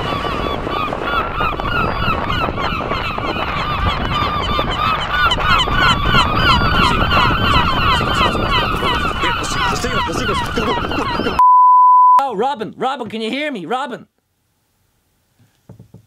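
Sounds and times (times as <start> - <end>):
gulls squawking: 0.0 - 11.4
wind rumble on microphone: 0.0 - 11.4.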